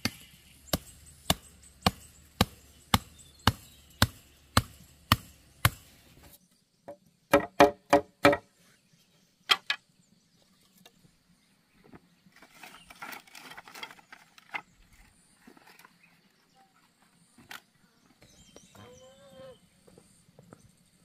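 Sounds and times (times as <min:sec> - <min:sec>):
machete chopping bamboo: 0:00.0 - 0:06.3, 0:07.3 - 0:08.5
wood knocking on wood: 0:06.9 - 0:08.5
bamboo stakes clattering: 0:09.5 - 0:09.8, 0:12.3 - 0:16.2.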